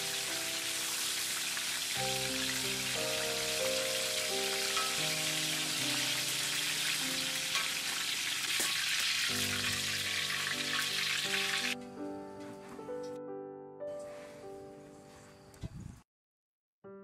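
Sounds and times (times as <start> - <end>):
peppers sizzling in hot oil: 0.0 - 11.8
soft background music: 0.0 - 15.8.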